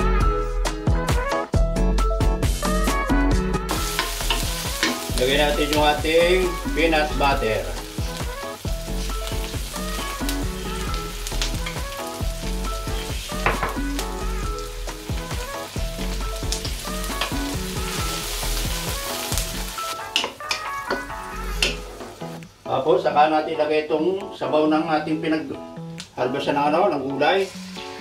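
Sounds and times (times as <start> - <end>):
onion sizzling in oil: 2.3 - 22.6, 27.0 - 28.0
wooden spoon scraping a pan: 27.3 - 28.0.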